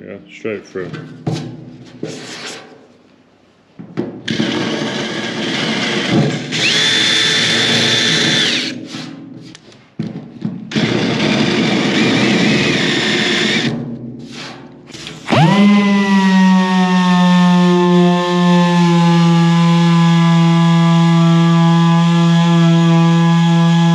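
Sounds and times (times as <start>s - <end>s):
power drill boring through metal: 4.3s - 8.8s, 10.7s - 13.7s, 15.2s - 23.9s.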